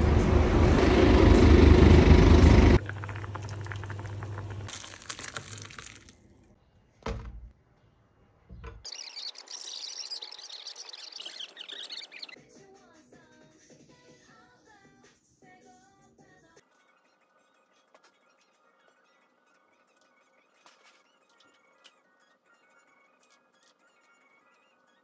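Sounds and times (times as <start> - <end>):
bus and street rumble: 0.0 - 4.7
soup poured into a bowl: 2.8 - 6.1
birds chirping: 8.6 - 12.4.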